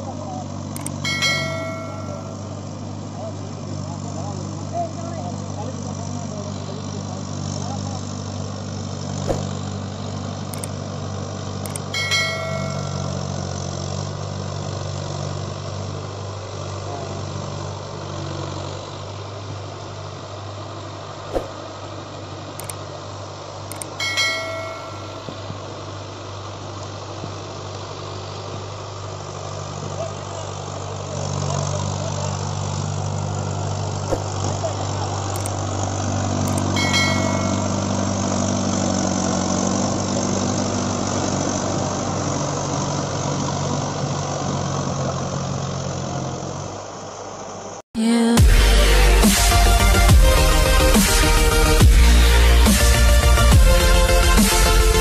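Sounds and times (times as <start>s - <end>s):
tractor diesel engine running: 0.0s - 55.0s
short chimes: 0.8s - 2.5s, 11.8s - 13.4s, 23.7s - 25.6s, 36.5s - 38.3s
faint click: 22.6s - 22.8s.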